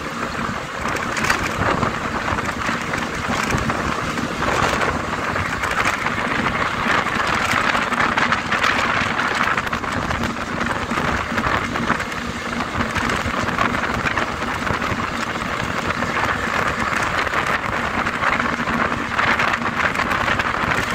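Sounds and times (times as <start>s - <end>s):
bus road noise: 0.0s - 20.9s
wind rushing: 0.0s - 20.9s.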